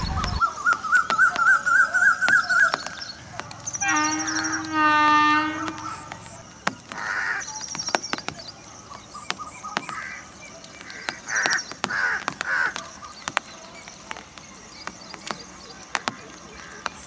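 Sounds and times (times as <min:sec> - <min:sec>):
small bird chirping: 0:00.0 - 0:17.0
crow cawing: 0:06.8 - 0:07.4, 0:10.8 - 0:12.8.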